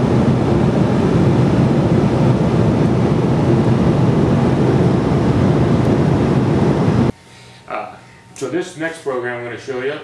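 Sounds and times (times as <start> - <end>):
airliner cabin noise: 0.0 - 7.2.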